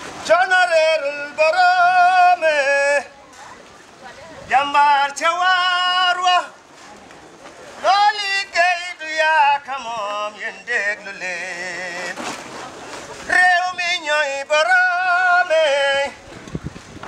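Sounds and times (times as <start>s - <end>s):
man singing unaccompanied: 0.0s - 3.2s, 4.4s - 6.6s, 7.8s - 12.2s, 13.3s - 16.2s.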